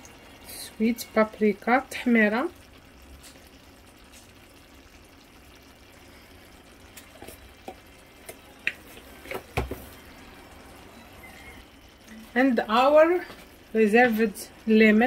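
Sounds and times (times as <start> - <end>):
stew simmering in a pot: 0.0 - 15.0.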